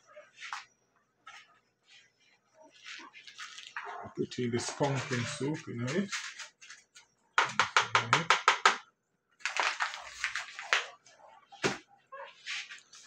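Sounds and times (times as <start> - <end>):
packet crinkling in hands: 2.8 - 3.8, 9.4 - 10.9
packet rustling: 2.8 - 3.9, 9.4 - 10.9.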